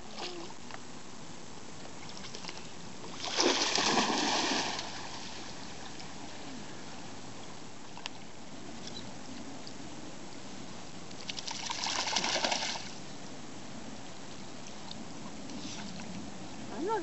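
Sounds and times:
dog splashing into water: 0:03.2 - 0:05.4, 0:11.3 - 0:12.9.

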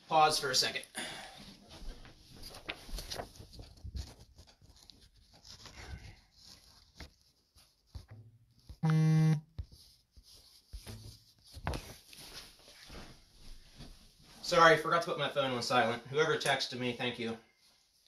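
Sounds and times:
soft footsteps: 0:01.4 - 0:04.6, 0:09.6 - 0:14.6
phone vibration buzz: 0:08.8 - 0:09.4.

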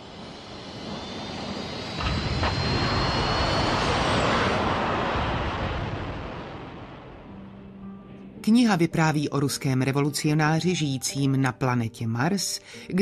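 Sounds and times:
rocket engine rushing: 0:00.0 - 0:07.7.

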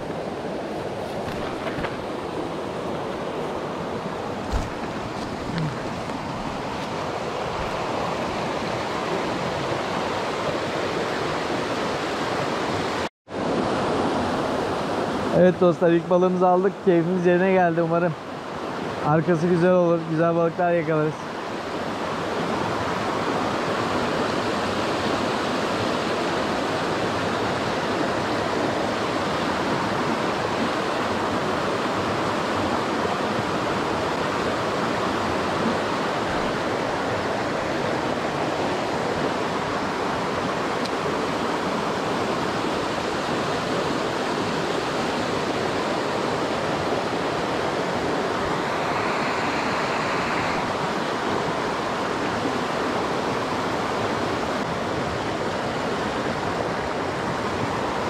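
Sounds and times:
creek water rushing: 0:00.0 - 0:58.0.

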